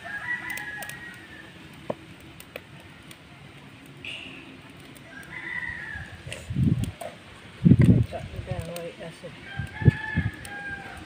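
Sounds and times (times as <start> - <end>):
firewood sticks knocking: 0.5 - 2.7.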